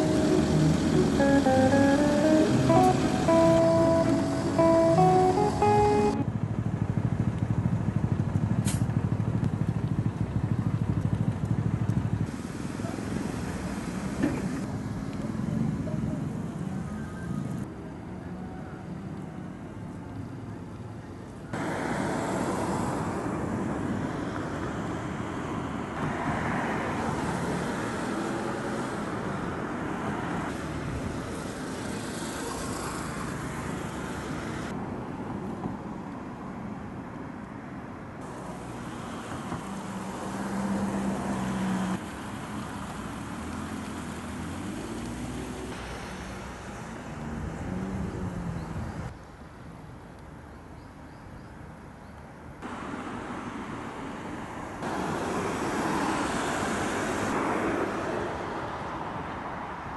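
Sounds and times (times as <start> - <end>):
low engine hum: 0.0 - 17.7
passing cars: 0.0 - 49.2, 52.6 - 59.9.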